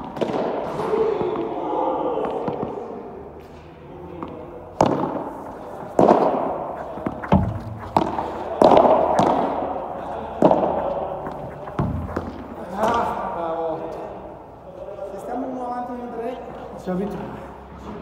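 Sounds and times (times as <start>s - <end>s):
padel ball pops echoing: 0.0s - 0.7s, 4.8s - 13.0s.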